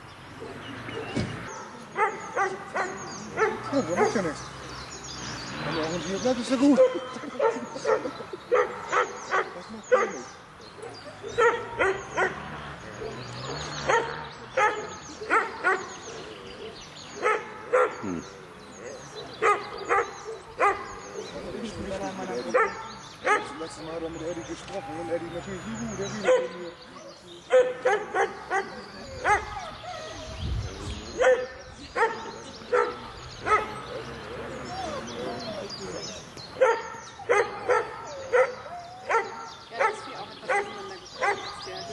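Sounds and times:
dog barking: 1.0s - 4.4s, 6.7s - 13.2s, 13.8s - 16.0s, 17.2s - 18.2s, 19.3s - 21.0s, 22.5s - 23.7s, 26.2s - 26.6s, 27.5s - 29.7s, 31.2s - 33.8s, 36.6s - 41.9s.

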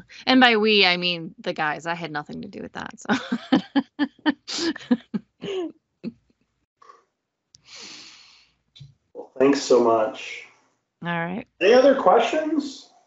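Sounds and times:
person laughing: 3.1s - 5.7s
breathy exhale: 7.6s - 8.4s.

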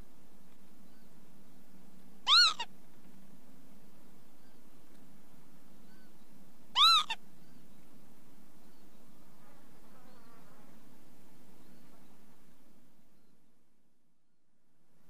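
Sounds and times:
steady low hum: 0.0s - 15.0s
lapwing calling: 2.2s - 2.7s, 5.8s - 7.6s.

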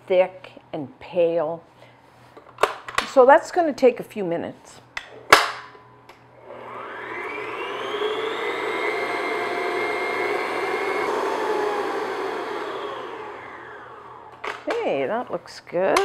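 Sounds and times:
stand mixer motor whine: 6.4s - 14.4s.

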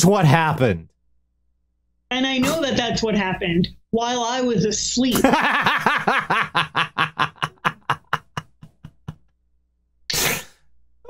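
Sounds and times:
man laughing hard: 5.2s - 9.2s.

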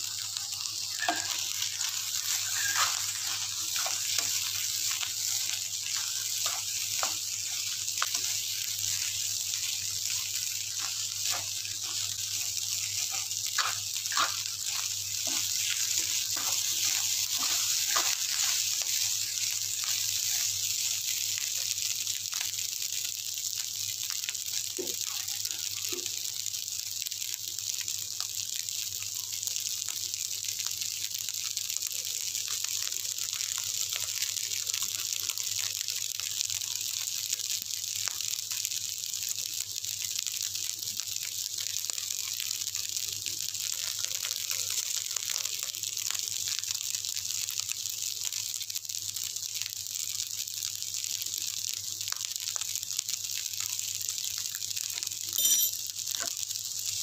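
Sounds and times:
rice sizzling in a wok: 0.0s - 57.0s
spatula scraping a wok: 1.0s - 20.5s.

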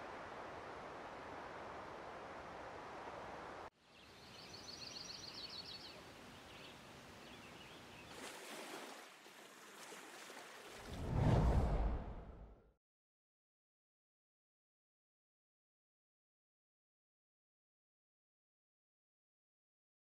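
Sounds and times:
steady rushing noise: 10.9s - 12.5s
loud low rumble: 11.0s - 12.6s.

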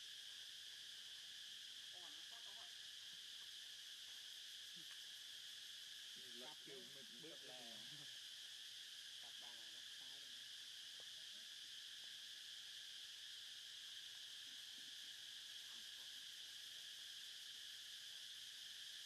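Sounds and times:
insects buzzing: 0.0s - 19.0s
faint human voice: 6.2s - 8.1s.

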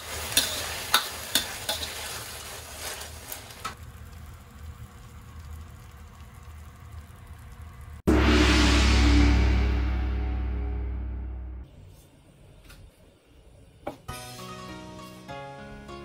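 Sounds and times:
food sizzling: 0.0s - 8.1s.

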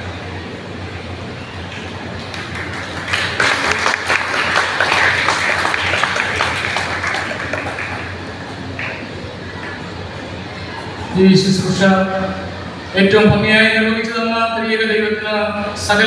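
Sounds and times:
audience applauding: 1.7s - 10.0s.

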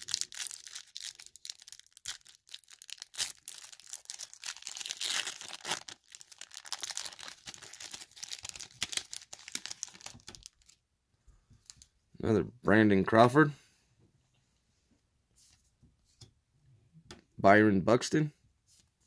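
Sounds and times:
foil wrapper tearing and crinkling: 0.0s - 10.8s.

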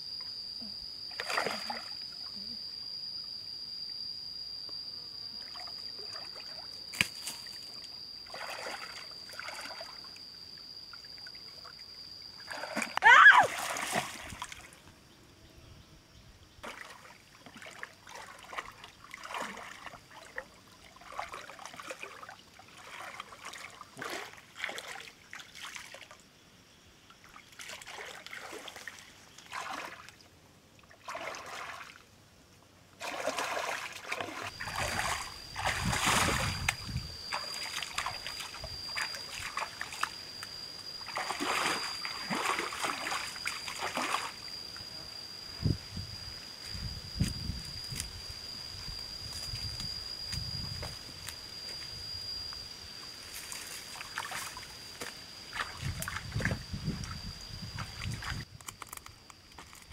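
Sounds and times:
steady high-pitched whine: 0.0s - 59.9s
water splashing: 31.0s - 31.9s, 33.0s - 40.1s, 41.1s - 44.4s.

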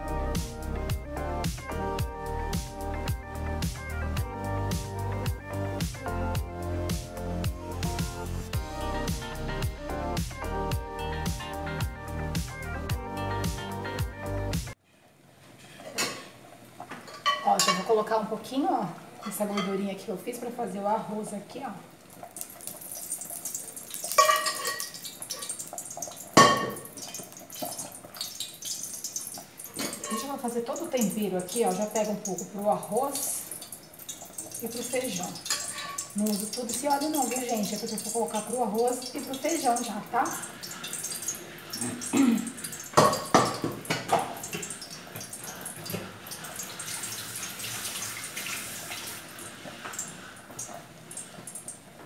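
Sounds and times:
metal clanks of spoon and pans: 15.6s - 18.1s, 24.1s - 25.6s, 26.4s - 27.8s, 29.7s - 30.4s, 35.4s - 36.1s, 43.0s - 44.7s
fat dripping: 21.9s - 52.0s
tap running water: 22.0s - 52.0s
spoon scraping metal pan: 24.0s - 25.6s, 29.7s - 30.4s, 34.7s - 36.2s
metal pot knocking: 26.4s - 27.0s, 43.0s - 44.7s.

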